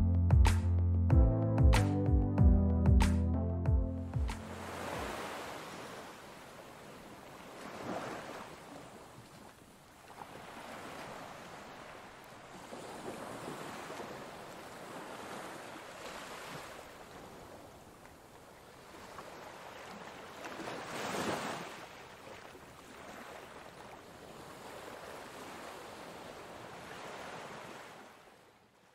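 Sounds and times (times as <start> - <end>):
sea water rushing: 4.3 - 9.3, 18.6 - 28.2.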